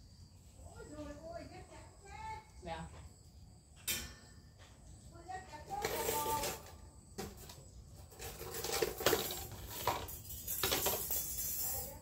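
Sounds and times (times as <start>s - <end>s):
hangers clinking on metal rail: 8.2s - 12.0s.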